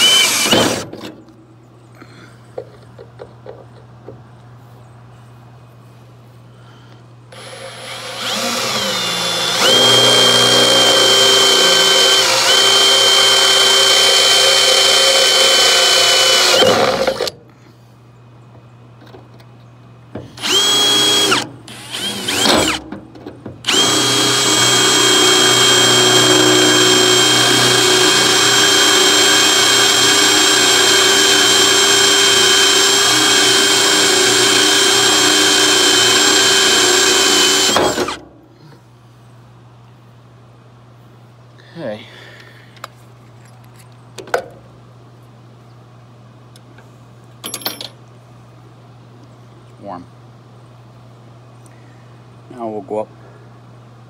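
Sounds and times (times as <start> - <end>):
cordless drill running: 0.0 - 0.9, 7.3 - 17.3, 20.4 - 22.8, 23.6 - 38.2.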